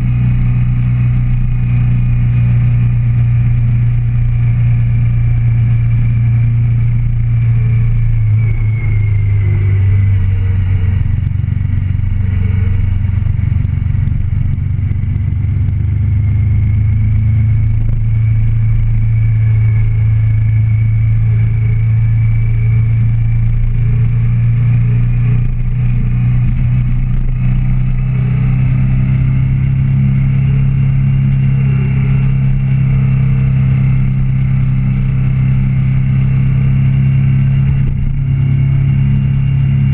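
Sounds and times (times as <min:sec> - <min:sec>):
motorcycle engine cruising: 0:00.0 - 0:39.9
faint high whine: 0:03.9 - 0:14.6.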